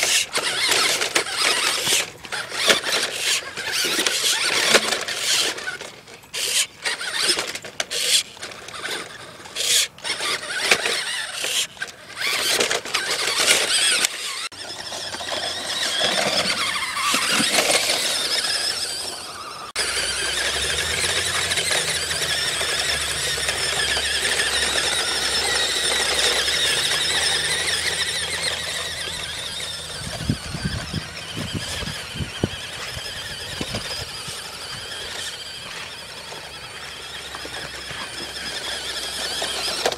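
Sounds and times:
toy truck motor whining: 0.0 - 39.9.

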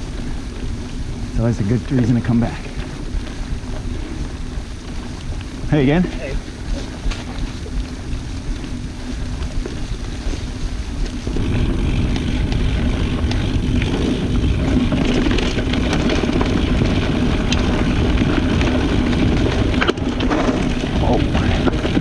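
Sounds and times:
bike tyres rolling on dirt: 0.0 - 22.0
wind on microphone: 0.0 - 22.0.

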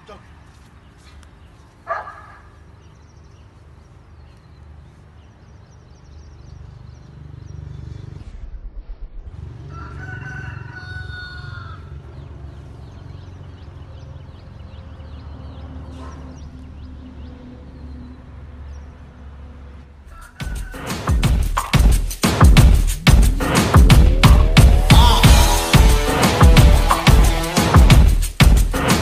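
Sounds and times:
steady low rumble: 8.1 - 9.5, 22.5 - 28.7
rooster crowing: 9.6 - 12.0, 20.1 - 21.2.

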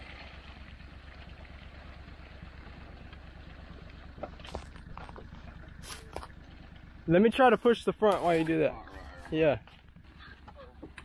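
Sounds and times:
small engine running: 0.0 - 11.0.

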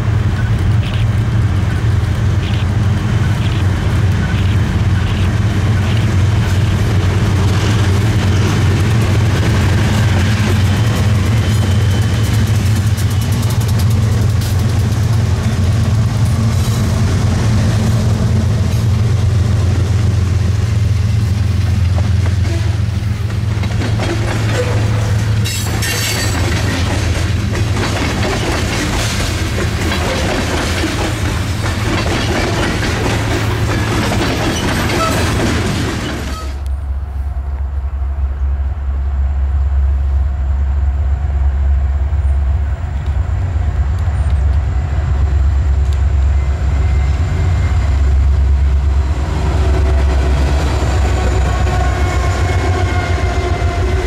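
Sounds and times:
freight train passing: 0.0 - 54.0
wheels clicking over rail joints: 21.8 - 36.7.

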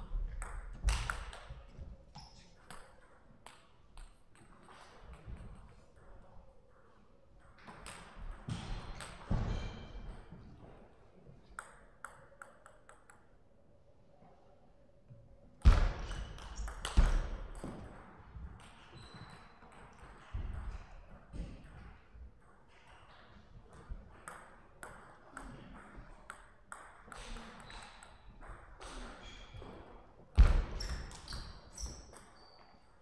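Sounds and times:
table tennis ball bouncing: 11.6 - 13.3, 15.6 - 20.7, 23.7 - 29.8.

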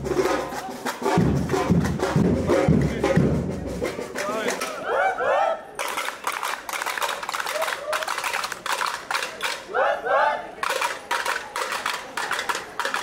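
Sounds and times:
crowd cheering and calling out: 4.0 - 5.9, 7.2 - 8.6, 9.2 - 12.5.

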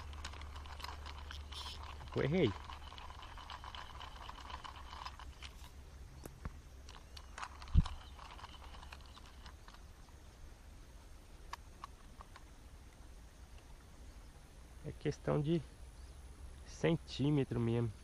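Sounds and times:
faint clicks and handling noises: 0.0 - 10.2, 11.4 - 13.7
low steady rumble: 0.0 - 18.0.

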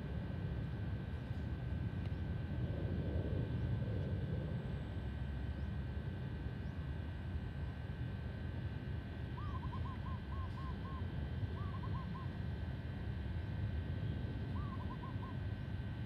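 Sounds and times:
distant jet airliner rumble: 0.0 - 16.0
bird calling: 9.4 - 12.3, 14.6 - 15.5.

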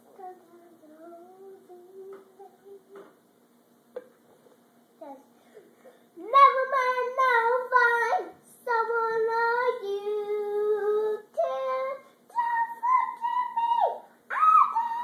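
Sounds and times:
girl singing: 0.0 - 3.1, 6.2 - 15.0.

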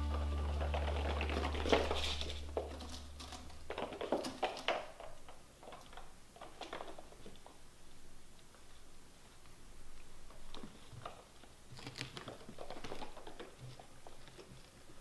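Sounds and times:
background music: 0.0 - 3.2
kittens' paws skittering on hardwood: 0.6 - 7.6.

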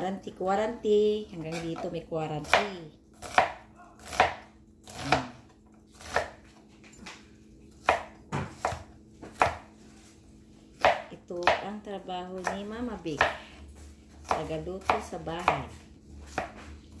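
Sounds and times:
knife chopping on cutting board: 1.5 - 10.1, 10.8 - 11.8, 12.4 - 17.0.

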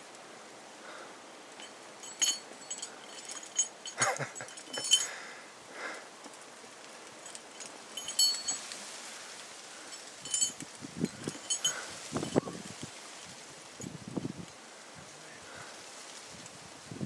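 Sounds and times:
climbing hardware clinking: 1.6 - 5.2, 7.1 - 8.8, 9.8 - 12.4.

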